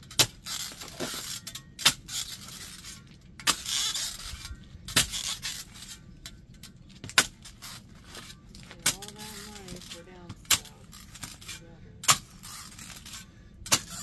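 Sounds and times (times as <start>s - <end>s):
spade scraping dirt: 0.0s - 14.0s
spade striking soil: 8.1s - 12.5s, 13.7s - 14.0s.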